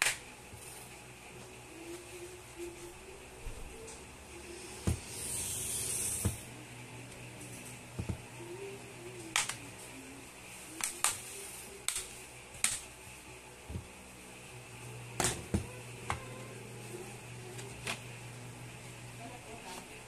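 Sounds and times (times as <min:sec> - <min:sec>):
plastic clicks and snaps: 0:09.3 - 0:09.6.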